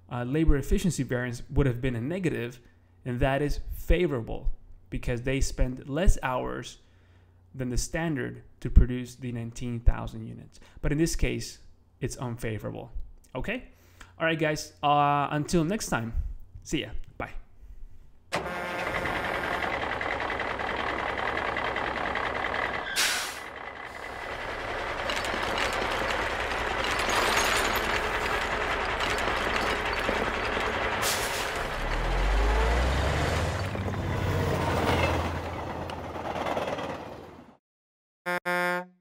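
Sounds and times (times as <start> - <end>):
truck engine running: 18.4 - 37.5
air-brake hiss: 22.9 - 23.5.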